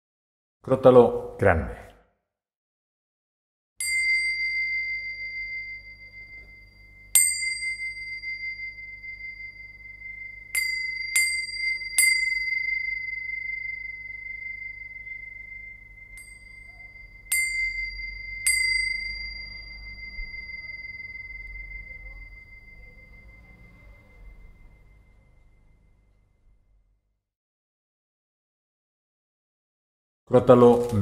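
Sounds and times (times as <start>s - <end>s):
small cymbals ringing: 3.8s - 26.9s.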